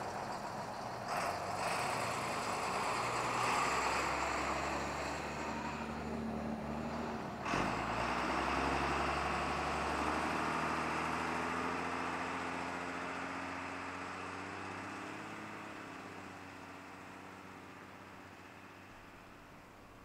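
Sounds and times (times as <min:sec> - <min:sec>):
bus engine driving off: 0:00.0 - 0:20.0.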